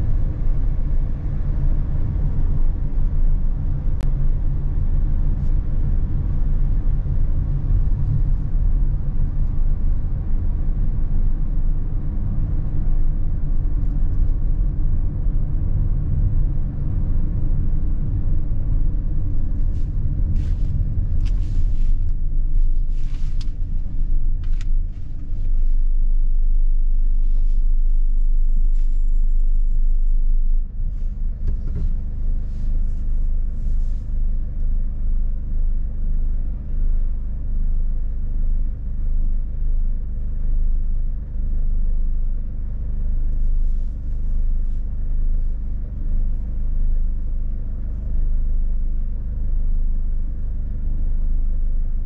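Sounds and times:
van engine and tyre rumble: 0.0 - 52.0.

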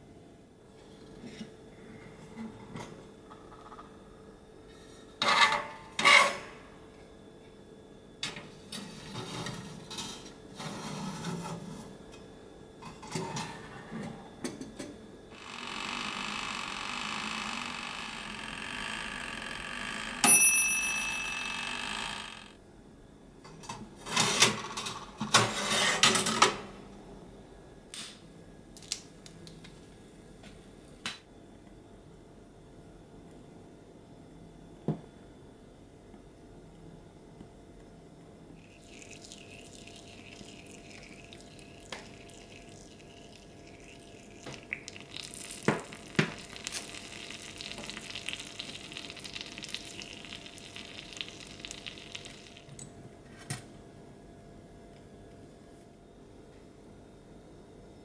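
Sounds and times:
toaster oven humming: 0.0 - 58.0
timer bell ding: 20.2 - 22.1.

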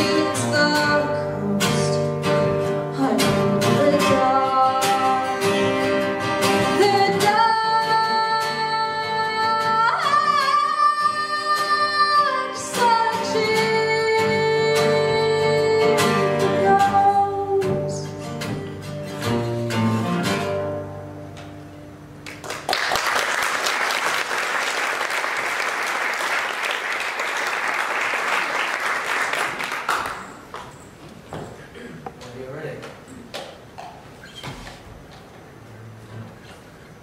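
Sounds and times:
woman singing: 0.0 - 2.3, 2.9 - 5.8, 6.6 - 18.3
strummed acoustic guitar: 0.0 - 22.2
audience applauding: 22.2 - 30.7.

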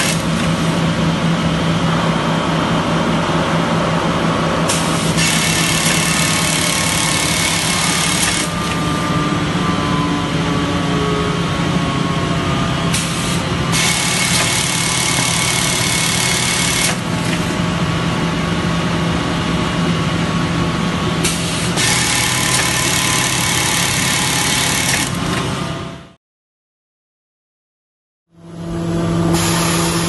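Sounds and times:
sewing machine hum: 0.0 - 0.8, 4.7 - 9.0, 13.0 - 17.6, 21.2 - 25.5.

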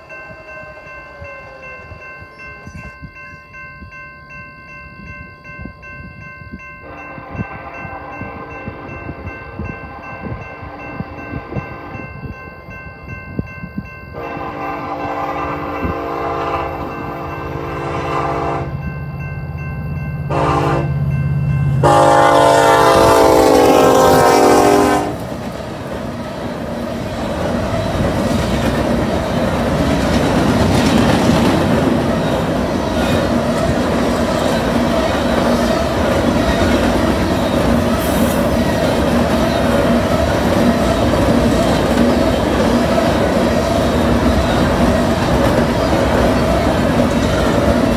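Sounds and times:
freight train rumbling and clattering: 6.5 - 47.9
locomotive horn blasts: 6.8 - 9.2, 14.2 - 18.8, 20.3 - 21.1, 21.8 - 25.3.

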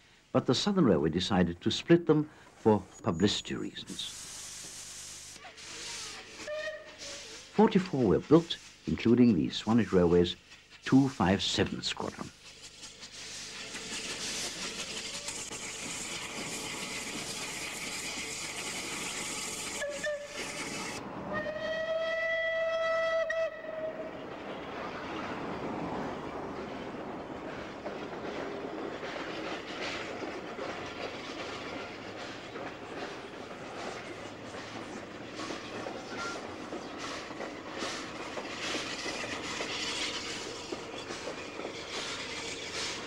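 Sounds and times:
steam locomotive exhaust hiss: 1.7 - 21.9, 28.5 - 43.0
steam whistle: 5.8 - 7.4, 19.6 - 24.1.

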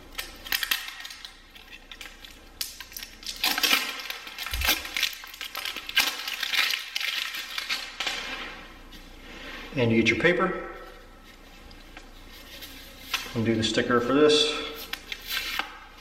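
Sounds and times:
masking tape peeling off roll: 0.1 - 8.4.

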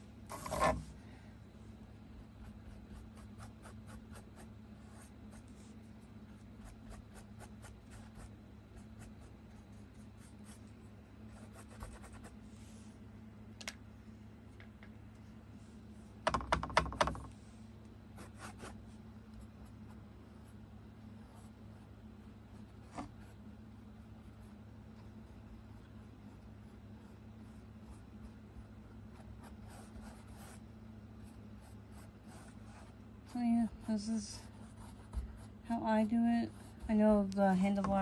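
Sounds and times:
paintbrush stroking canvas: 26.2 - 38.0.

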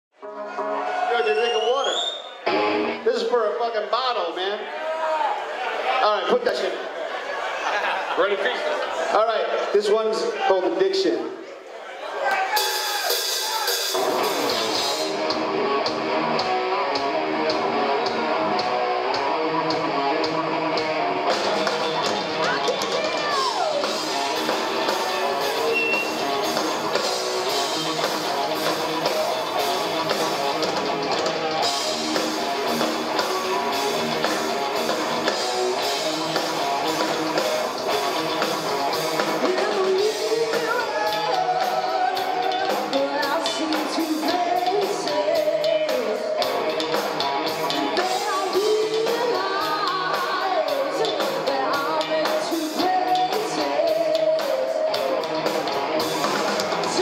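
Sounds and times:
rock band playing: 0.1 - 6.9, 12.2 - 57.0
woman singing: 39.4 - 46.4, 47.7 - 55.4.

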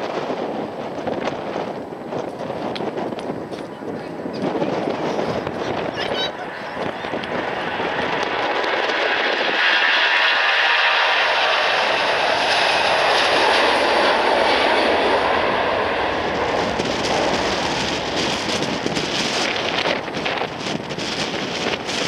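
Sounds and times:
jet engines at takeoff thrust: 0.0 - 22.0.

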